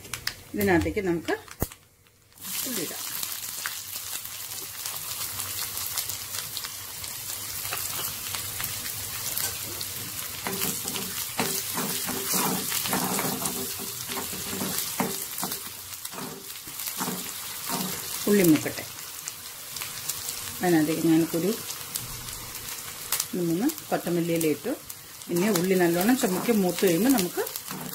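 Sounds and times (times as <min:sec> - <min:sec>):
onions sizzling in hot oil: 0:00.5 - 0:27.9
spoon stirring in pan: 0:09.4 - 0:18.2.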